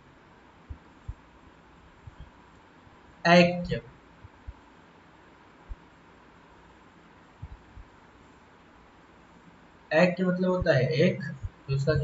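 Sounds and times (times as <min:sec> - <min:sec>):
steady faint hiss: 0:00.0 - 0:12.0
soft low thumps: 0:00.6 - 0:02.4, 0:03.6 - 0:04.7, 0:05.7 - 0:05.9, 0:07.4 - 0:08.0, 0:10.6 - 0:12.0.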